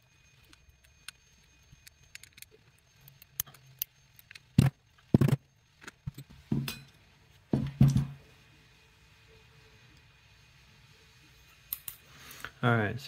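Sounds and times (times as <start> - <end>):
small metal parts clinking: 0.4 - 7.0.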